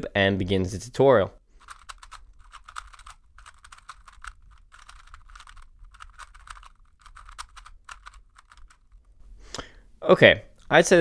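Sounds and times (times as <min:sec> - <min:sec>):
puzzle cube clicking: 0:01.6 - 0:09.2.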